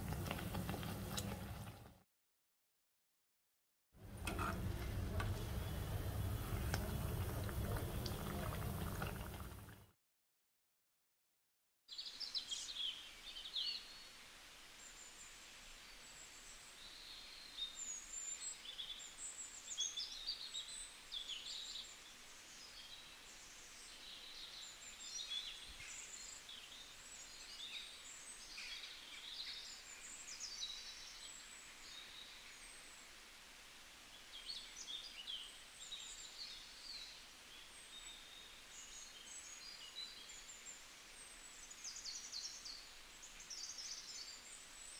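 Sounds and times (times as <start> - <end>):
faint steady hiss: 4.0 - 9.9, 11.9 - 44.9
small birds chirping: 34.1 - 44.9.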